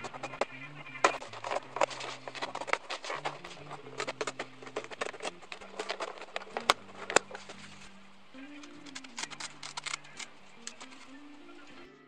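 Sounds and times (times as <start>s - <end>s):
faint background music: 0.0s - 12.0s.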